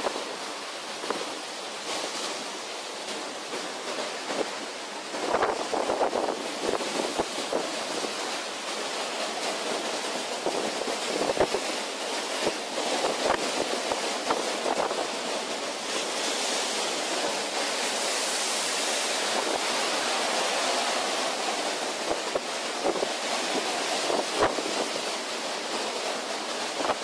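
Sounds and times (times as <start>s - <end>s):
breaking waves: 0.0s - 27.0s
wind buffeting microphone: 4.3s - 8.3s, 20.9s - 25.1s
storm wind hissing: 4.4s - 8.3s, 16.0s - 27.0s.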